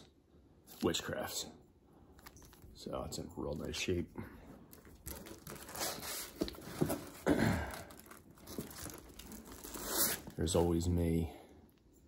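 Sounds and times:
plastic record sleeves crinkling: 2.1 - 3.7, 4.6 - 10.9.

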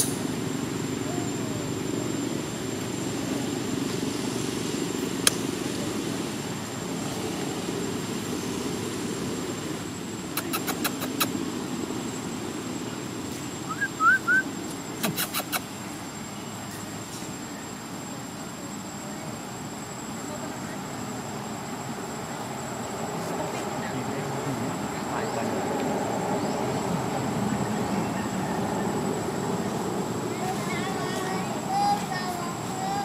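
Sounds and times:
faint high whine: 0.0 - 33.0
low engine-like rumble: 0.0 - 33.0
sharp clicks: 10.4 - 11.3
short squeaky chirps: 10.4 - 11.3, 15.0 - 15.7.

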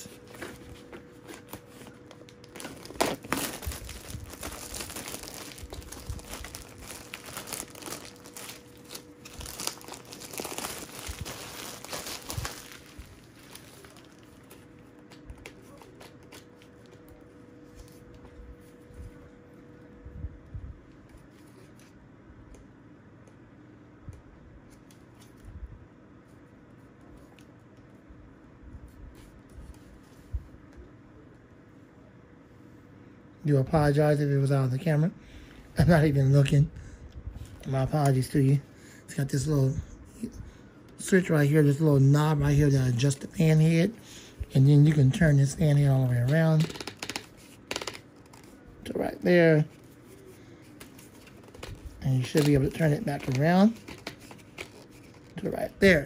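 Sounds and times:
plastic wrap crinkling: 0.0 - 17.2, 44.6 - 55.6.

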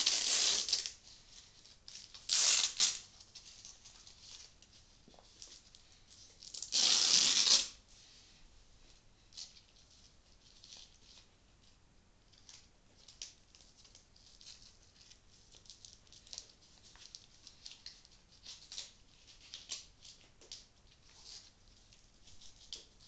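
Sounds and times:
velcro straps crackling: 0.0 - 5.6, 6.4 - 7.8.

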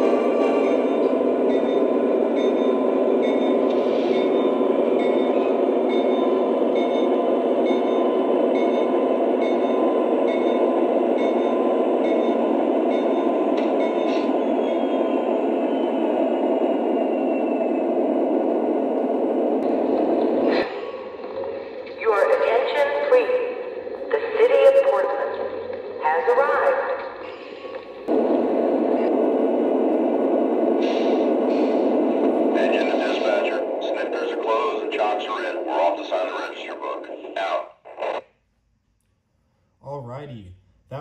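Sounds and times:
locomotive bell ringing: 0.5 - 14.3.

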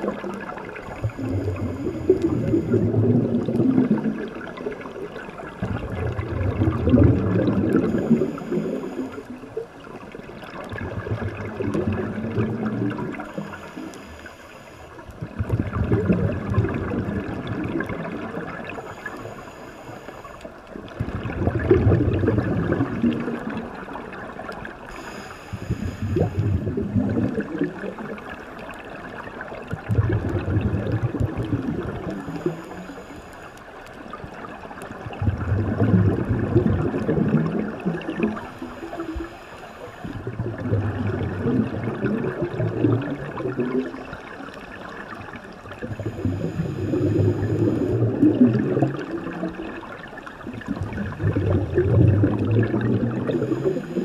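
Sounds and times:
exhaled bubbles rushing: 0.0 - 14.1, 14.9 - 19.4, 20.2 - 33.2, 33.8 - 54.0
regulator inhalation hiss: 13.3 - 15.0, 18.8 - 20.4, 24.9 - 26.5, 38.4 - 40.2.

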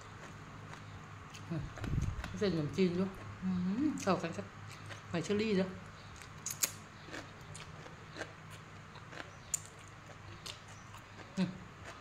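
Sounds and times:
open-mouth chewing smacks: 6.1 - 12.0.

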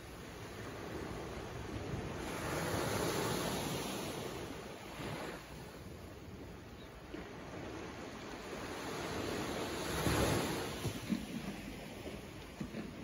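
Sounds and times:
small waves washing on beach: 0.0 - 13.0.

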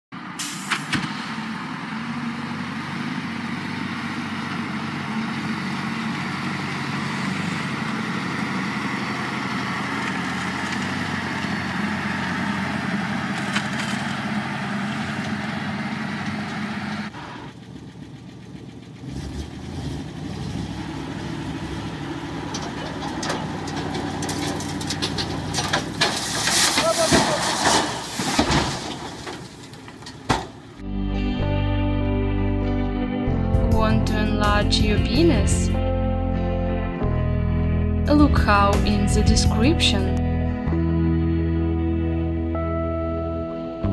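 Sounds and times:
truck engine running: 0.1 - 30.9
old truck engine running: 0.2 - 30.8
dirt unloading: 0.4 - 17.7, 19.0 - 30.8.

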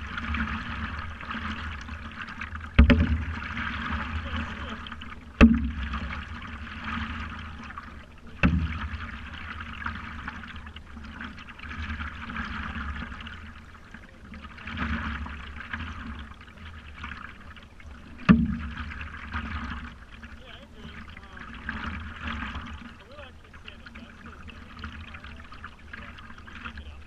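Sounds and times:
water lapping against paddleboard: 0.0 - 27.0.

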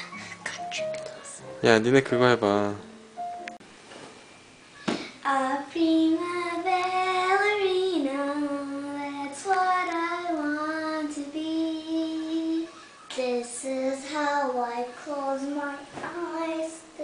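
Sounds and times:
girl singing long notes: 5.1 - 17.0.

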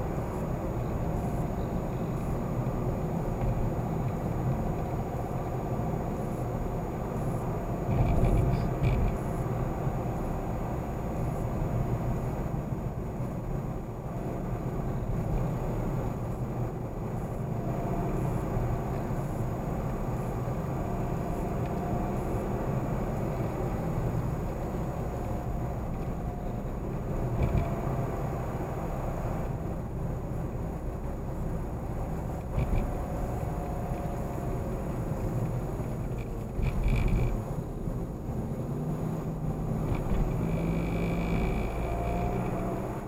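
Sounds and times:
car road and engine noise: 0.0 - 43.0.

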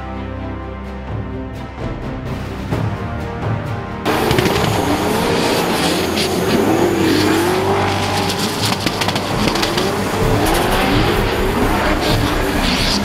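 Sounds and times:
car engine revving: 4.1 - 13.0
tyres spinning: 4.1 - 13.0.

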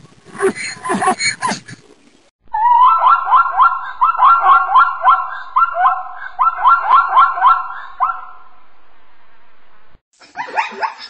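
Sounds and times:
zebra barking: 2.7 - 8.4.

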